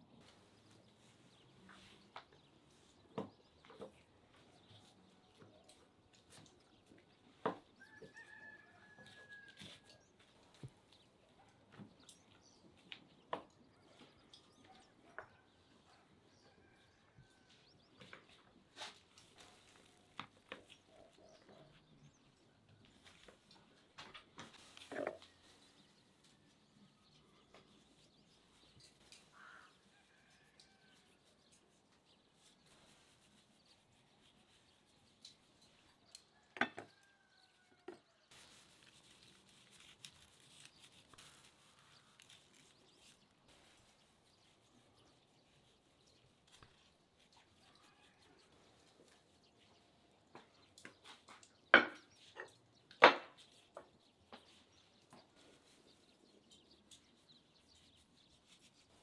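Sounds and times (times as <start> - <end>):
salt sprinkled on meat: 38.3 - 49.4.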